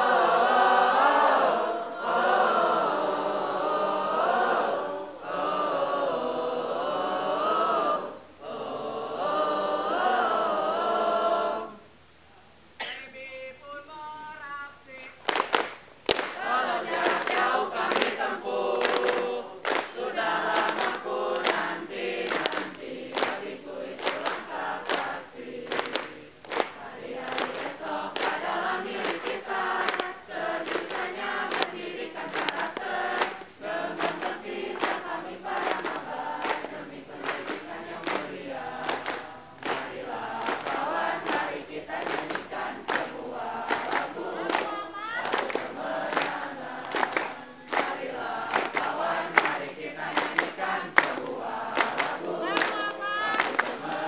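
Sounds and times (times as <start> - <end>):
group singing a cheer song: 0.0 - 12.0, 12.8 - 54.0
rhythmic hand clapping: 15.0 - 54.0.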